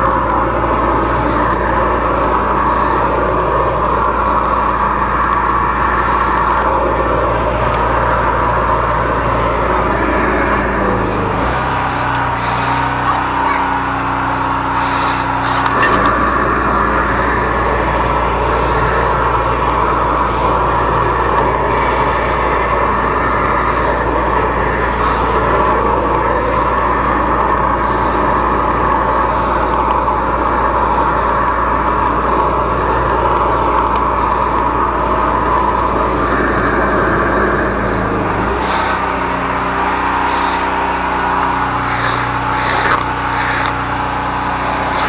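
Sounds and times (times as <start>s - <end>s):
engine and pump drone: 0.0s - 45.0s
water jetting hiss: 10.3s - 22.2s, 38.0s - 45.0s.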